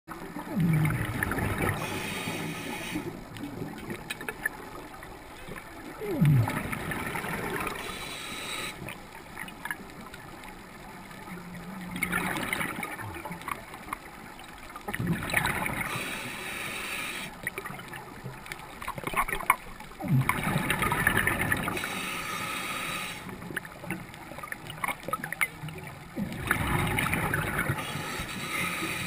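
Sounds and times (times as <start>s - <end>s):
exhaled bubbles burbling: 0.2s - 2.0s, 2.8s - 7.9s, 11.2s - 13.8s, 14.8s - 16.0s, 18.8s - 21.8s, 23.4s - 28.2s
regulator hiss on inhale: 1.6s - 3.2s, 7.6s - 9.0s, 15.8s - 17.4s, 21.7s - 23.5s, 27.7s - 29.0s.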